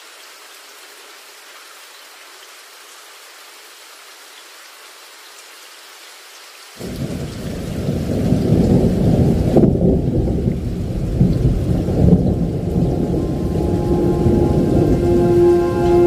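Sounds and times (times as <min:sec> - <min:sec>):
rain falling: 0:00.0 - 0:16.0
thunder rumbling: 0:06.8 - 0:16.0.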